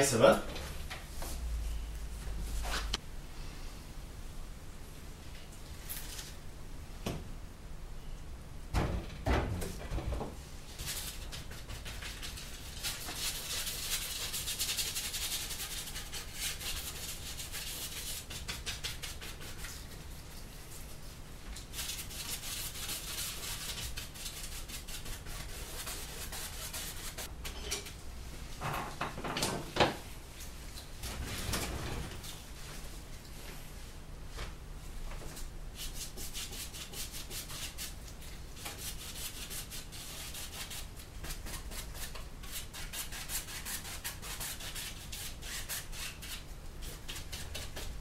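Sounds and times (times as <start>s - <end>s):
paintbrush scrubbing canvas: 10.8s - 27.3s, 35.8s - 38.0s, 38.6s - 47.9s.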